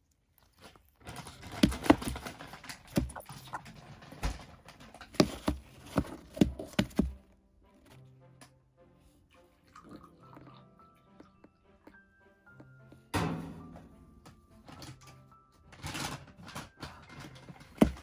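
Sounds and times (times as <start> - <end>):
parrot chicks tapping on plastic: 1.4 - 3.6.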